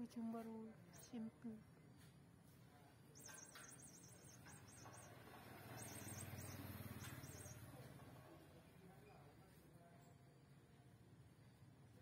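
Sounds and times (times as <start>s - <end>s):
toy mouse squeaking: 3.2s - 7.7s.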